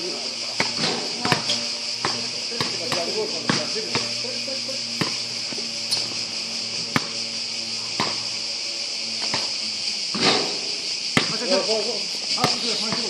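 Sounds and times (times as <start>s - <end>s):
insects chirping chorus: 0.0s - 13.0s
basketball bouncing on asphalt: 0.6s - 4.1s, 5.0s - 6.1s, 6.8s - 8.3s, 9.2s - 9.5s, 11.1s - 11.4s, 12.3s - 13.0s.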